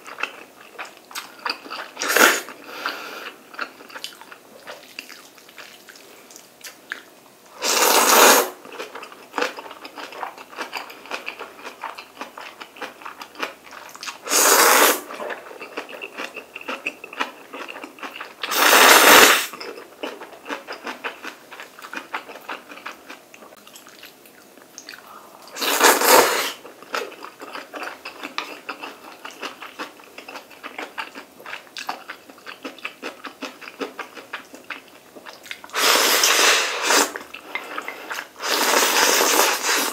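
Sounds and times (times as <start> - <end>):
loud noodle slurps: 2.0 - 2.5, 7.6 - 8.6, 14.3 - 15.2, 18.5 - 19.5, 25.6 - 26.6, 35.7 - 37.2, 38.0 - 39.9
wet chewing: 3.5 - 7.1, 19.5 - 25.1, 26.6 - 39.9.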